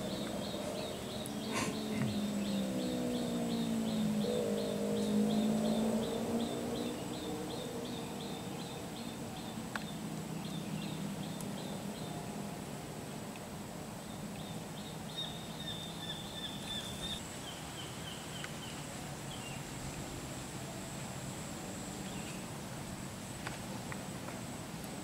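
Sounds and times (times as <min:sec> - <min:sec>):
bird chirping: 0:00.0 - 0:12.2, 0:14.0 - 0:19.6
low background noise: 0:00.0 - 0:25.0.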